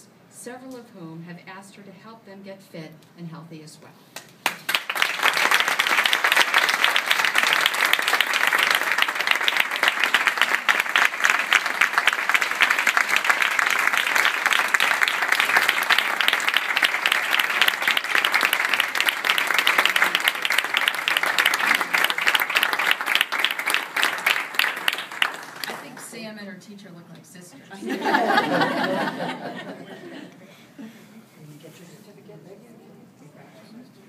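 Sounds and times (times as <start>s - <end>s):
audience applauding: 4.4s - 26.0s.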